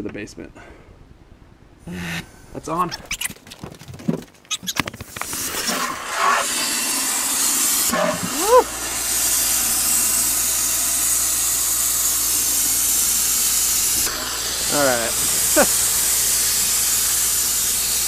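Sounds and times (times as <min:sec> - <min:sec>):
water spraying from pipe: 0:05.2 - 0:18.0
compressed air hissing: 0:05.3 - 0:18.0.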